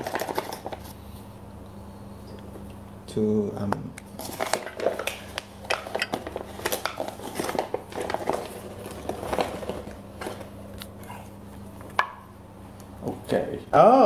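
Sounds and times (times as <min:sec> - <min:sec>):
bag rustling: 0:06.1 - 0:10.6.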